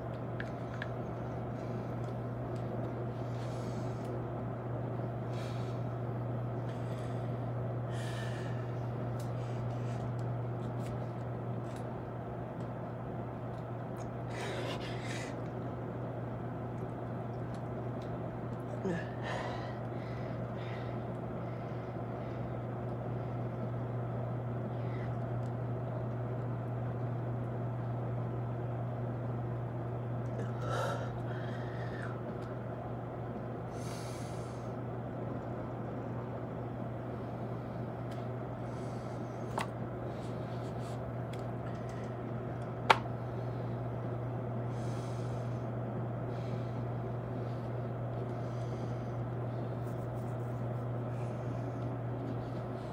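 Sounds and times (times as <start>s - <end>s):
steady low hum: 0.0s - 52.9s
man breathing hard: 6.7s - 10.1s, 18.8s - 22.6s, 30.4s - 32.2s.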